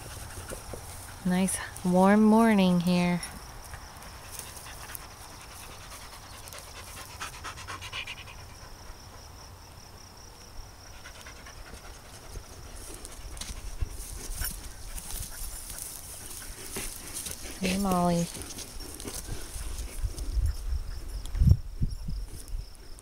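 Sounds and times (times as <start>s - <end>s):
dog panting: 0.0s - 1.3s, 4.0s - 9.3s, 10.8s - 21.2s
grass rustling underfoot: 0.0s - 9.2s, 10.8s - 23.0s.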